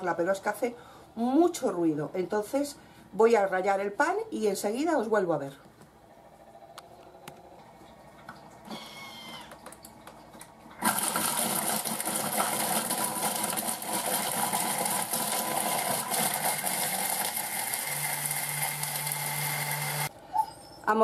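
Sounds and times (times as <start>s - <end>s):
low steady hum: 0.0s - 10.8s
food processor grinding bread: 10.8s - 20.1s.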